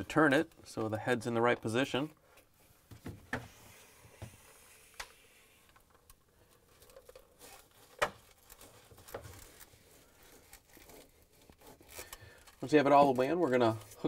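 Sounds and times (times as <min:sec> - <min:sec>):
gloved hands rubbing plastic: 0:06.6 - 0:14.0.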